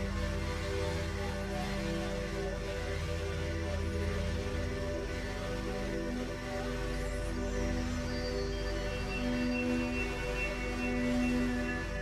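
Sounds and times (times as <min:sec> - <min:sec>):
slow instrumental music: 0:00.0 - 0:12.0
steady low drone: 0:00.0 - 0:12.0.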